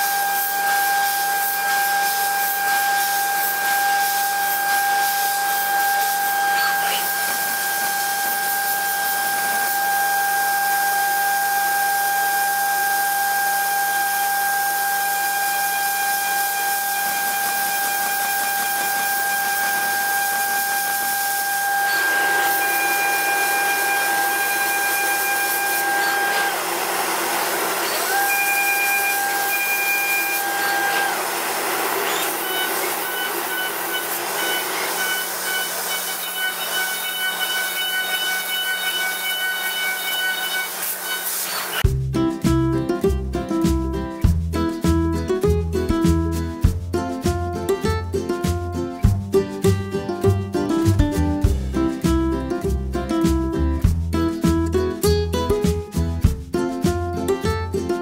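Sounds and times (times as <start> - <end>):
high-pitched machine whine: 0.0 - 41.9
milling machine cutting metal: 0.0 - 41.9.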